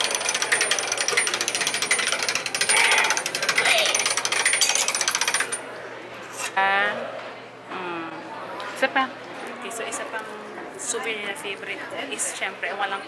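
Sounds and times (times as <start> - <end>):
hand-cranked machine gears clicking: 0.0 - 5.6.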